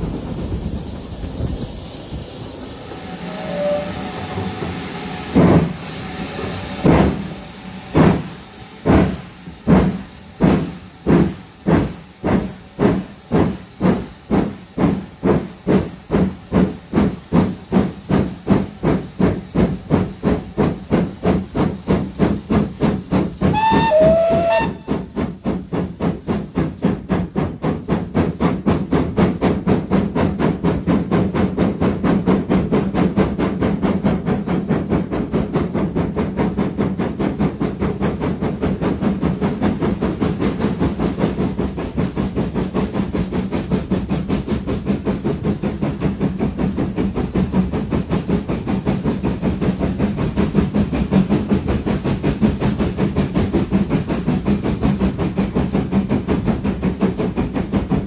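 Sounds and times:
steam hissing: 0.0 - 58.0
steam locomotive exhaust chuffs: 0.0 - 58.0
locomotive whistle: 3.1 - 4.5, 23.5 - 25.2.

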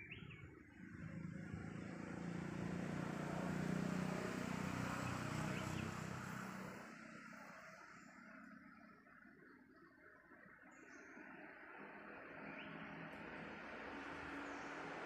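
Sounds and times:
vehicle driving past: 0.7 - 8.9, 11.2 - 15.0.

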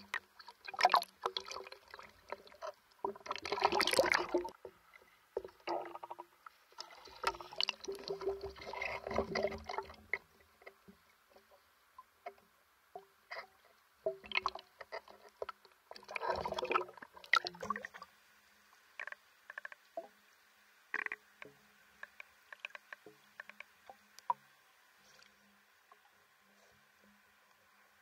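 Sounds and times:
water splashing and sloshing: 0.0 - 20.3
muffled underwater clicks: 18.9 - 20.2, 20.9 - 24.5.

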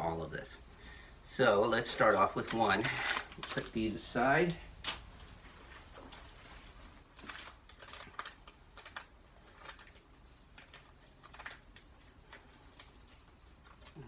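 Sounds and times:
packet crinkling and tearing: 1.9 - 4.0, 7.1 - 14.0.

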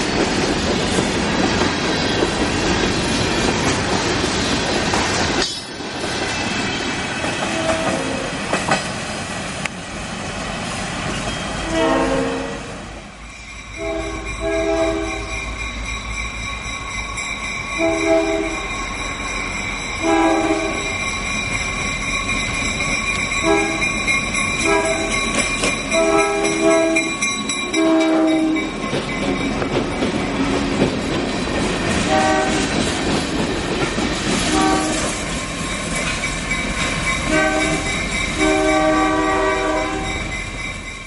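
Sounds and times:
locomotive air horn blasts: 7.5 - 8.3, 11.6 - 12.8, 13.8 - 15.3, 17.8 - 18.7, 20.0 - 20.9, 23.4 - 23.9, 24.6 - 25.1, 26.0 - 27.1, 27.7 - 28.6, 32.1 - 32.6, 34.4 - 35.1, 37.3 - 40.2
freight cars rumbling and clattering: 21.0 - 27.6, 28.4 - 39.0.

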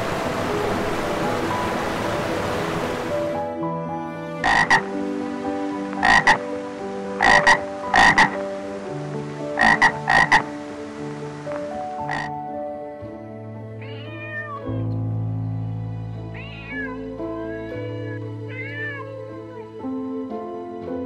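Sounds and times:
soft piano music: 0.0 - 21.0
frog croaking: 4.4 - 5.0, 5.8 - 12.5.

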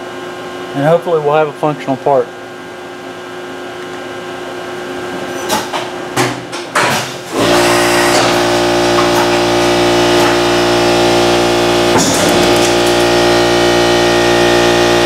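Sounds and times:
low machine hum: 0.0 - 15.0
cutter grinding into metal: 7.0 - 15.0.

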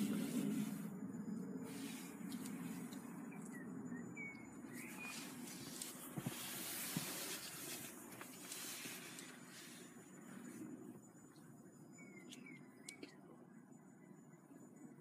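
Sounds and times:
phone rustling hiss: 0.0 - 3.2, 4.8 - 11.5.

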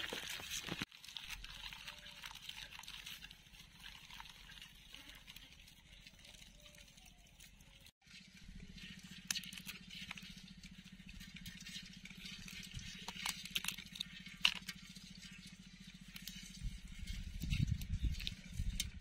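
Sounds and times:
crab shells cracking and snapping: 0.0 - 7.9, 8.8 - 16.5
steady low hum: 8.0 - 19.0.

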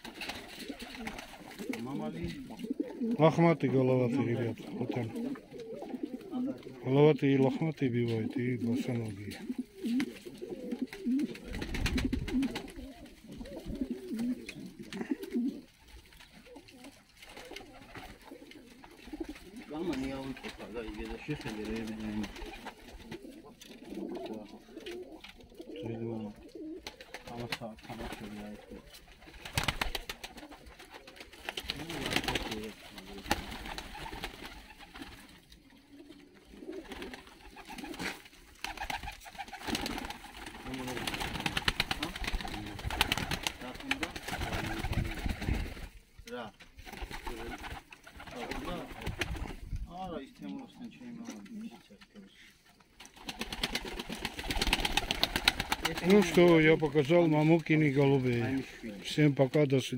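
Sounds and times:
pigeons cooing: 0.0 - 46.0, 47.0 - 49.6
small rustles and clicks: 9.2 - 20.6.

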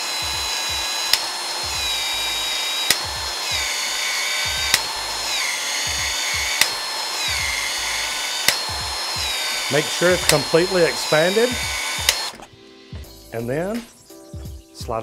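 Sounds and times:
pipe expansion tool motor running: 0.0 - 12.5
sharp tool click: 1.0 - 1.4, 2.4 - 12.4.

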